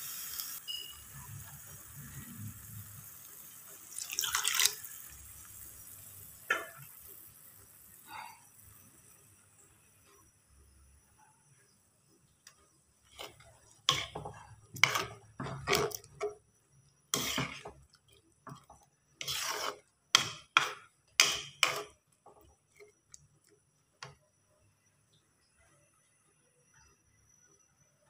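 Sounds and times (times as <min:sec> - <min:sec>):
spatula scraping a metal pan: 0:13.0 - 0:16.4, 0:17.1 - 0:22.9.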